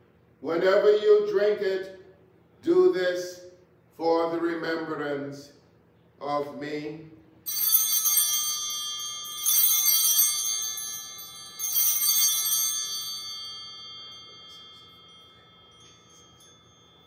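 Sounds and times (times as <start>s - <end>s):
altar bells ringing: 7.4s - 17.0s.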